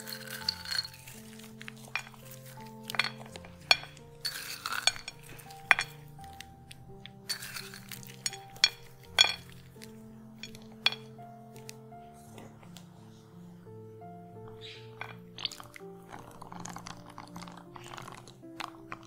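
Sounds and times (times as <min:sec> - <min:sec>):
nuts clinking in ceramic bowl: 0:00.0 - 0:06.5, 0:07.1 - 0:11.2, 0:14.6 - 0:15.8
background music: 0:00.0 - 0:19.0.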